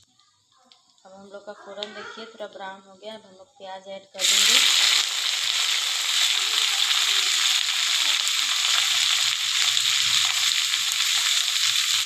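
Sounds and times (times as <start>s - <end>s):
onions sizzling in hot oil: 4.2s - 12.0s.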